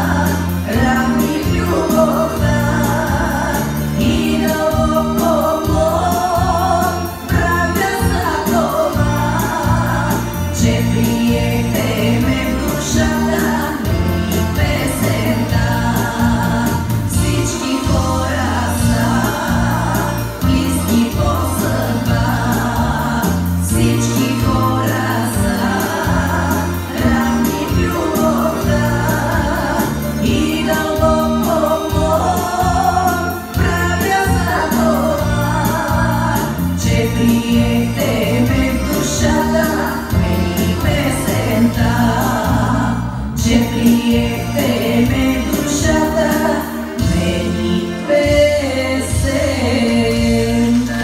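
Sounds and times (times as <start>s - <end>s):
instrumental accompaniment with beat: 0.0s - 51.0s
repeating bass line: 0.0s - 51.0s
woman singing folk song: 0.0s - 51.0s.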